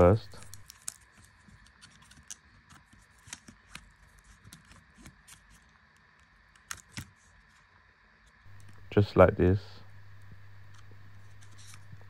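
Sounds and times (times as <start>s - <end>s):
cable plug clicks and scrapes: 10.7s - 12.0s.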